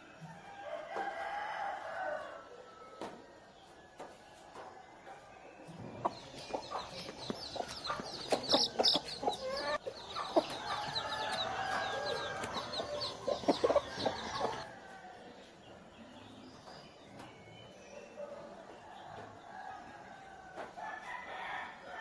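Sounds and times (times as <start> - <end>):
chickens clucking: 3.0 - 16.0.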